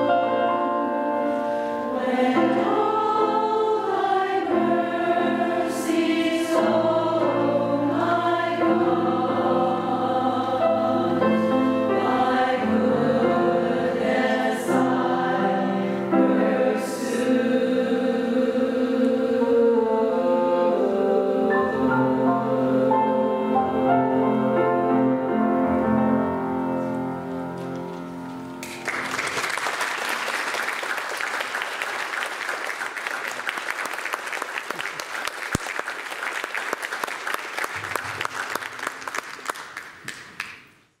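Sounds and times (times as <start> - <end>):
choir with bassoon and piano: 0.0 - 27.3
audience applause: 28.6 - 40.6.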